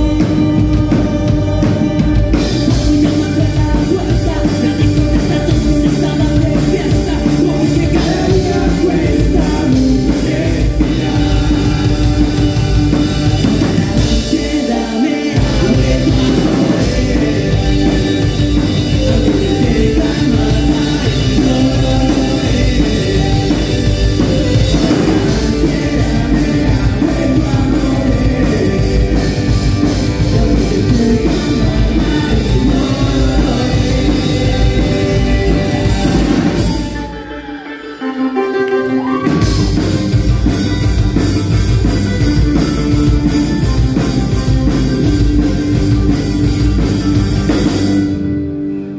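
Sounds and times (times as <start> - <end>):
person singing: 0.0 - 44.6
rock band playing: 0.0 - 48.9.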